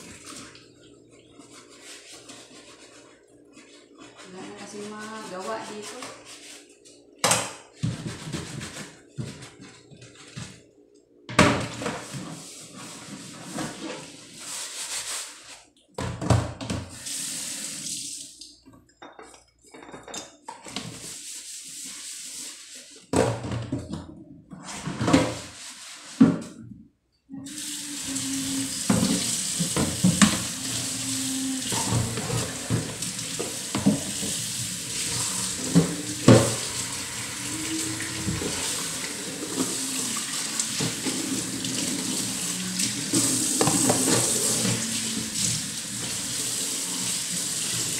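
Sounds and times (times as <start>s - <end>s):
tap water running: 16.9s - 18.8s, 27.4s - 47.9s
dishes and utensils clattering: 19.0s - 21.0s, 43.0s - 45.3s.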